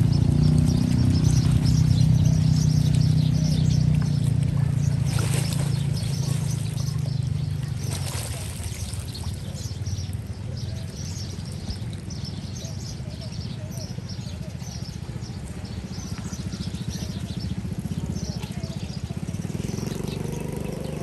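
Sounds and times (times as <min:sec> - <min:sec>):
water trickling: 0:00.0 - 0:12.6.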